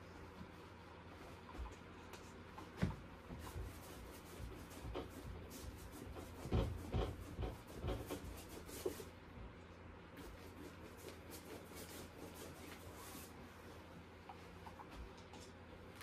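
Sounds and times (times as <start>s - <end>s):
paintbrush rubbing on canvas: 3.4s - 9.2s, 10.2s - 13.4s.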